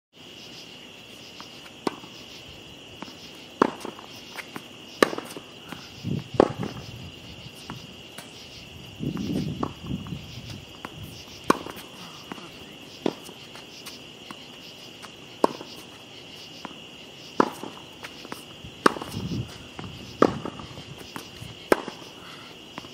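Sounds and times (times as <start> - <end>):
insects chirring: 0.2 - 22.9
tennis ball struck and bouncing: 1.4 - 2.2, 3.0 - 5.8, 6.4 - 6.9, 9.2 - 10.1, 10.7 - 22.1
footsteps scuffing on hard court: 3.0 - 22.9.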